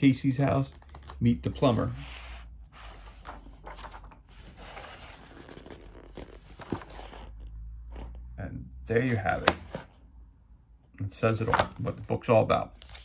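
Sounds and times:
book pages rustling: 0.5s - 8.3s, 12.8s - 13.0s.

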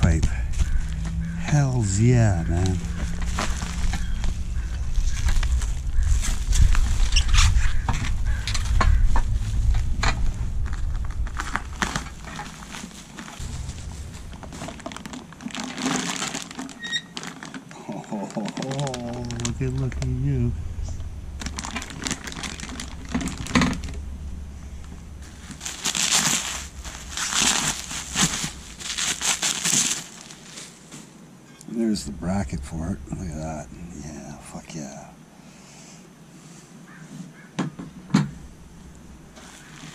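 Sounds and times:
low rumble: 0.0s - 30.4s, 31.8s - 34.8s, 38.3s - 39.9s
bubble wrap crinkling: 2.5s - 8.7s, 10.5s - 31.1s, 39.3s - 39.9s.

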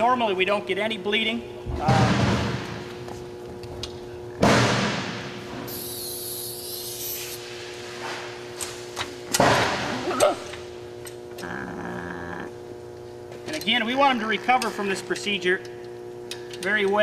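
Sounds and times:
steady hum: 0.0s - 17.0s
loud knocks echoing in hall: 1.7s - 3.0s, 4.4s - 5.6s, 9.3s - 10.0s
brief high hiss: 5.7s - 7.4s.

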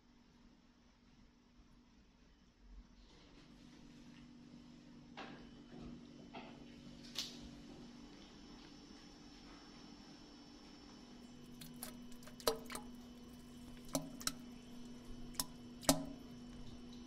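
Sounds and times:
steady low hum: 11.2s - 17.0s
water dripping into toilet bowl: 11.2s - 17.0s.

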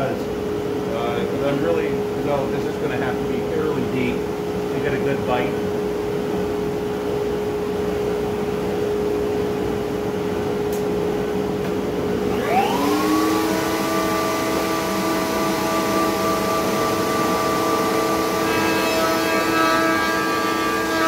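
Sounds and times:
machine hum: 0.0s - 21.0s
router motor whine: 12.2s - 21.0s.

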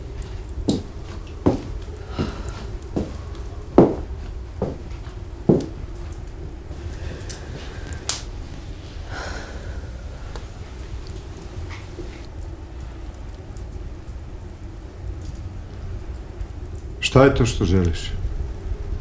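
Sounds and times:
steady low rumble: 0.0s - 17.0s
footsteps on wooden floor: 0.1s - 6.2s, 10.3s - 12.3s
sharp snap: 8.1s - 8.3s.

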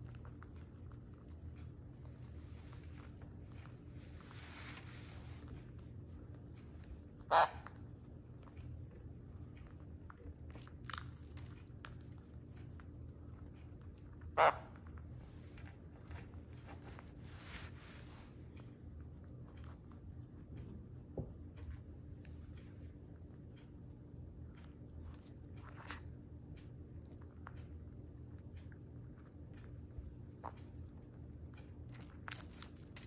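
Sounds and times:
bird cracking seeds: 10.7s - 11.5s, 32.2s - 33.0s.

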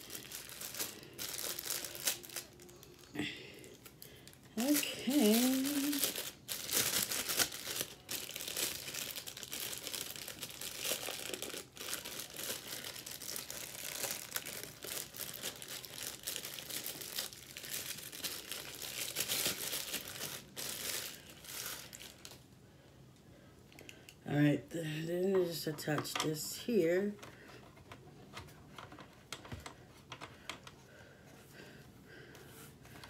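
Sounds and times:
plastic bag crinkling: 0.0s - 22.4s.

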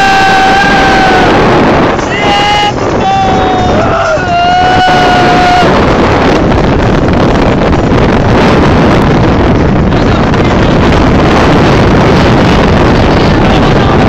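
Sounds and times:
road noise: 0.0s - 14.0s
wind buffeting microphone: 0.0s - 14.0s.

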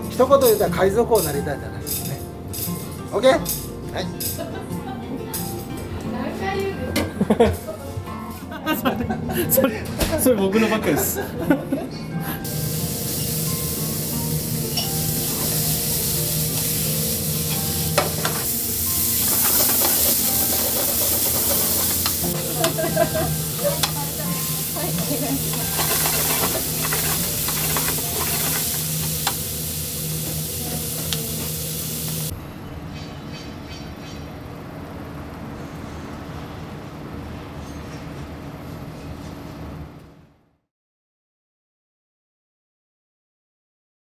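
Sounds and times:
onion and meat sizzling in pan: 12.5s - 32.3s
utensils clicking against pan: 17.5s - 29.5s.

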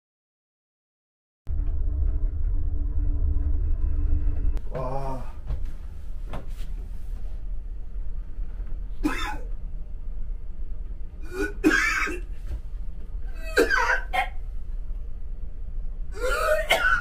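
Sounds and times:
man retching and gagging: 16.2s - 17.0s.

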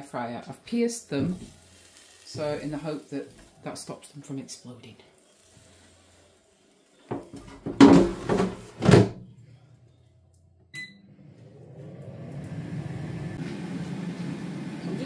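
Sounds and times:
fan whirring: 7.1s - 15.0s
drawer sliding shut with clunks: 7.5s - 9.2s
short beep: 10.7s - 11.0s.

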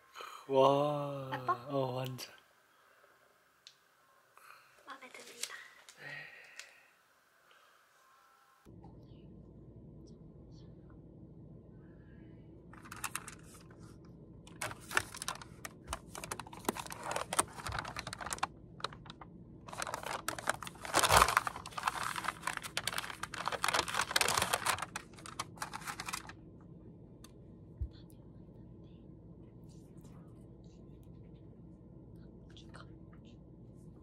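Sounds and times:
paper bag rustling: 12.8s - 13.9s, 14.5s - 26.3s.

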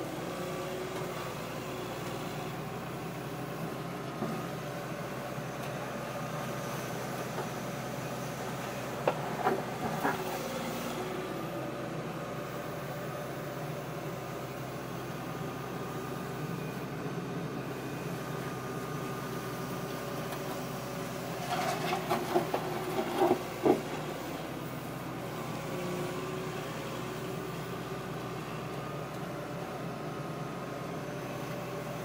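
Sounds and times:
excavator engine and hydraulics: 0.0s - 32.0s.

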